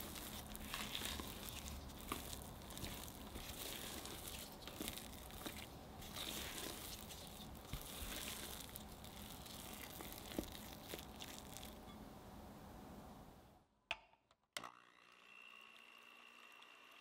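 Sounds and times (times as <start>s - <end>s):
spatula squishing and scraping batter: 0.0s - 12.0s.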